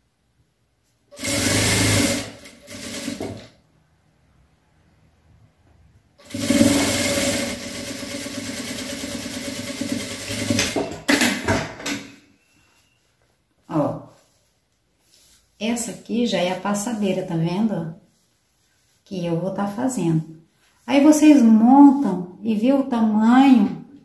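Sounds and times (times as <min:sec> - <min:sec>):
electric sewing machine stitching: 0:01.1 - 0:03.6, 0:06.2 - 0:11.0.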